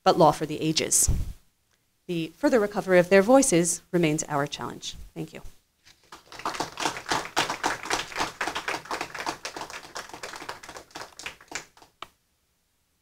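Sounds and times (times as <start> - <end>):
audience applauding: 6.0 - 12.1.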